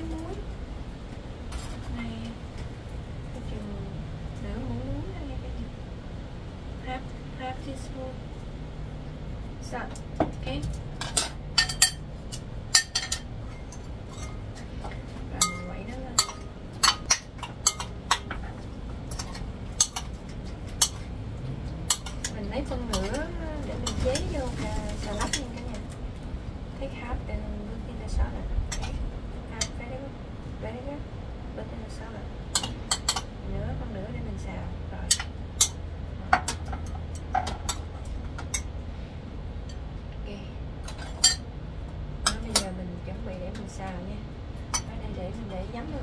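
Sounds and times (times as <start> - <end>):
metal spoon clinking on ceramic plate: 11.0 - 12.0
metal spoon clinking on dishes: 11.0 - 14.5, 15.4 - 18.4, 19.1 - 21.1, 32.5 - 33.3, 40.9 - 41.5.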